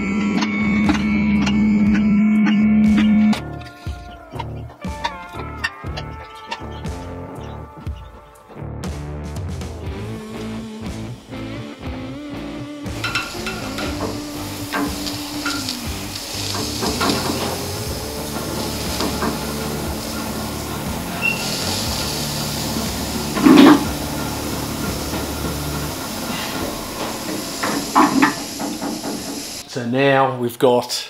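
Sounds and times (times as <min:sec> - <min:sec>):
hydraulic pump running: 0:00.0 - 0:03.5, 0:12.9 - 0:29.6
loud metal clunk: 0:26.4 - 0:29.6.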